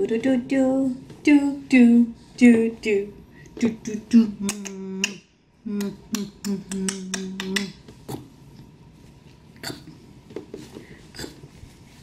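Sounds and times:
woman singing wordless tune: 0.0s - 7.8s.

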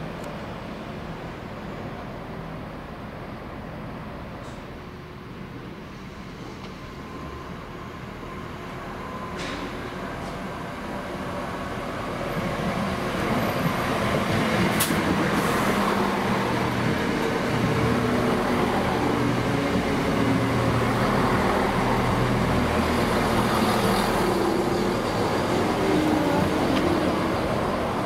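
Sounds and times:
diesel train engine running: 0.1s - 28.0s.

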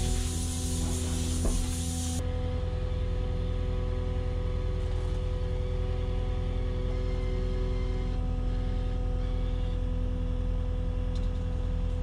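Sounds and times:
steady whine: 0.0s - 4.1s
loader engine running: 0.0s - 12.0s.

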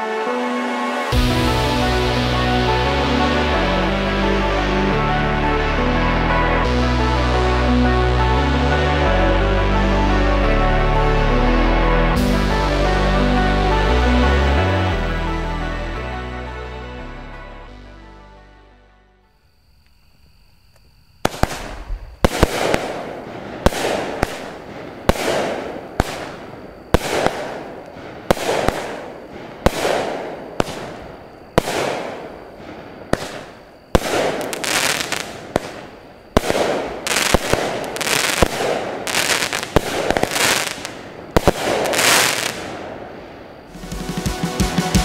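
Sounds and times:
firework reports: 21.2s - 45.0s.

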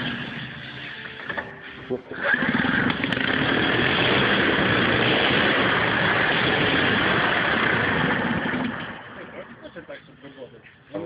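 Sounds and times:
rotary engine spinning: 2.2s - 9.4s.

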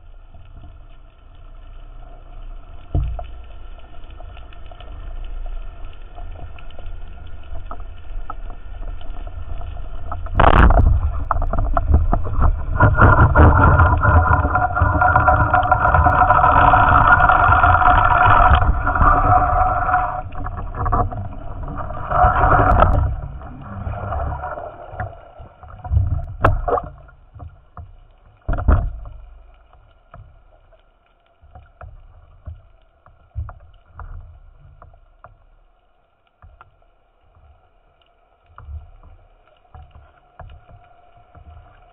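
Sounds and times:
water rushing and bubbling: 0.0s - 41.9s
water splashes: 0.0s - 41.9s.

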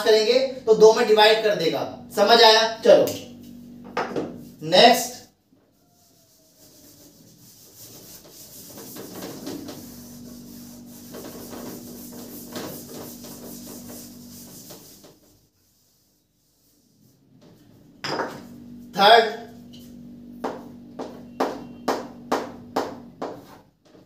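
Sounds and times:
faint steady hum: 0.0s - 5.3s, 17.7s - 23.1s
scraping on writing surface: 5.8s - 15.4s.

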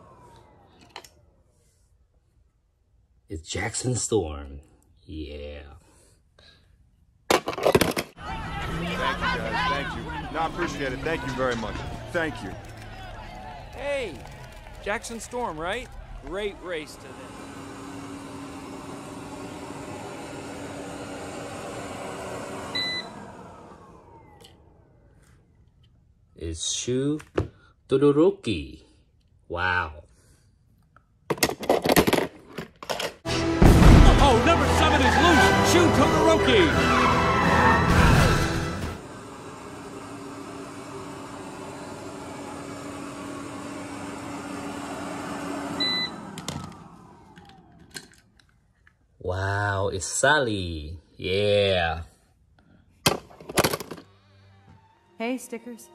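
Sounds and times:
motor winding down whine: 0.0s - 1.7s, 8.2s - 25.6s, 33.3s - 48.4s
robot vacuum whirring: 8.2s - 25.3s, 38.4s - 48.2s.

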